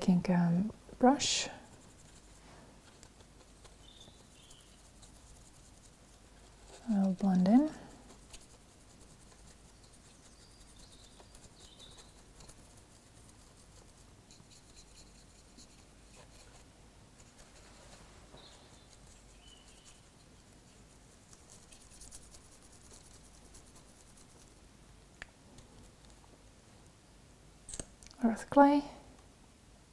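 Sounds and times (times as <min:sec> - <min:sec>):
paintbrush scratching: 0:01.5 - 0:24.6.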